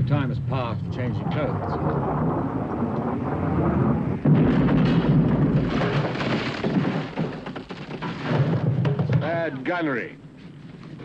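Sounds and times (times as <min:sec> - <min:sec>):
distant cannon fire: 0:00.9 - 0:09.3.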